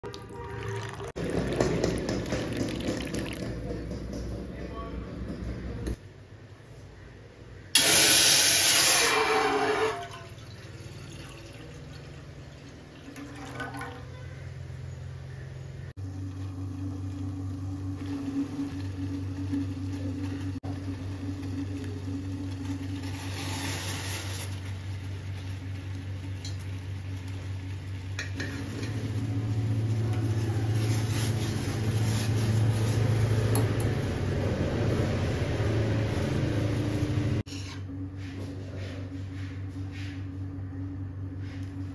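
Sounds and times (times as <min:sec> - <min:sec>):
water pouring and splashing: 0:00.0 - 0:03.6, 0:08.3 - 0:14.2.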